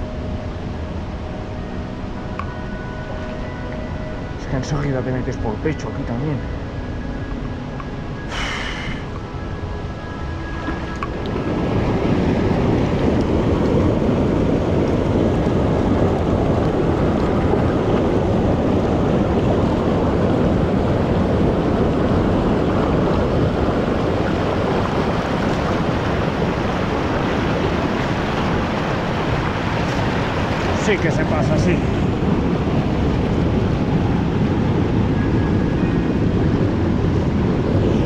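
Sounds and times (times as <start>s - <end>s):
river rapids rushing: 10.8s - 34.7s.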